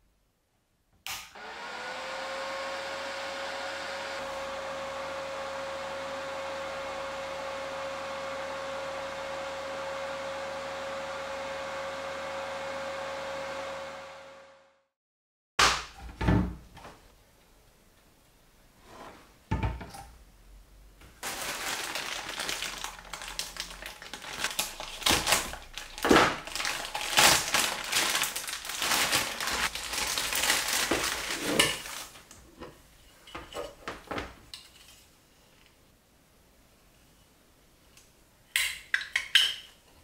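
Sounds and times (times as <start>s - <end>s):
plastic bag crinkling: 21.2s - 32.4s.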